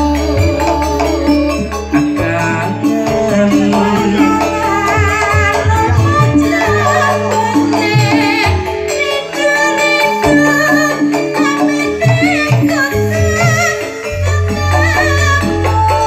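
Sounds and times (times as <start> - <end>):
bass notes: 0.0 - 9.1
rhythmic percussion: 0.0 - 16.0
woman singing with vibrato: 0.0 - 16.0.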